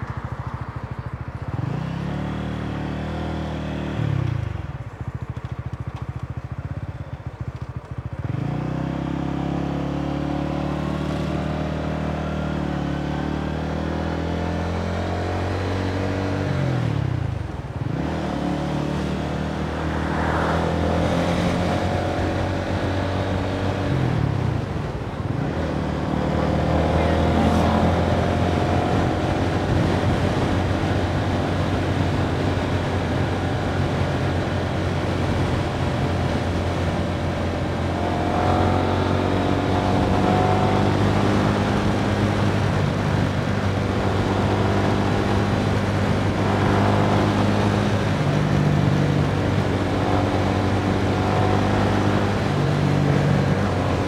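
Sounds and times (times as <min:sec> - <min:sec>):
scooter engine running: 0:00.0 - 0:13.3
wind and road noise: 0:00.0 - 0:54.0.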